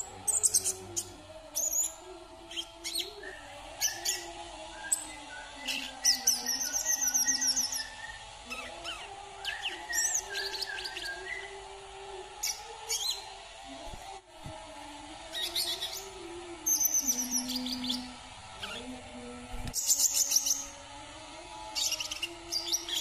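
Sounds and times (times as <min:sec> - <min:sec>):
bird chirping and twittering: 0:00.0 - 0:04.3, 0:04.9 - 0:11.5, 0:15.3 - 0:18.9, 0:19.8 - 0:20.8, 0:21.8 - 0:23.0.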